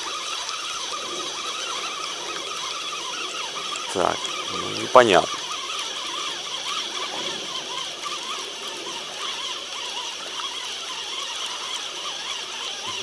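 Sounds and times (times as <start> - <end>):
frogs croaking: 0.0 - 13.0
steady hiss: 3.5 - 5.4.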